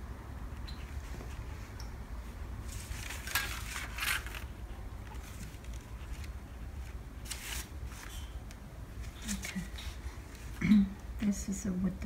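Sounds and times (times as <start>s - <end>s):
paper and fabric rustling: 2.6s - 10.6s.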